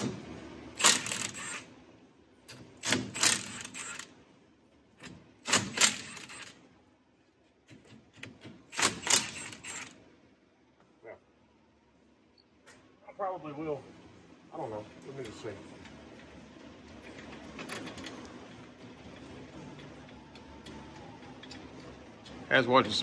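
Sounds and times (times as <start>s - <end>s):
impact wrench hammering bolts: 2.5s - 4.1s, 5.0s - 6.4s, 7.7s - 9.9s.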